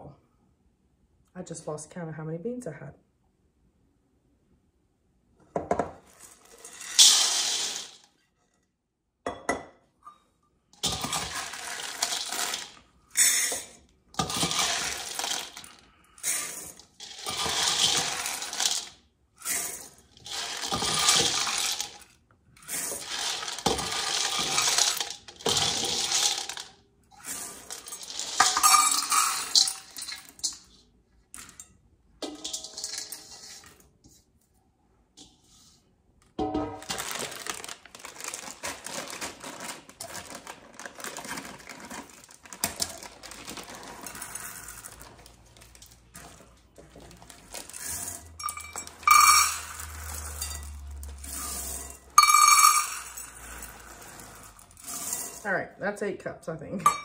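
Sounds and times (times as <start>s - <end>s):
dry beans rattling into bowl: 5.8s - 8.1s, 10.8s - 30.8s, 32.2s - 33.7s, 36.8s - 55.4s.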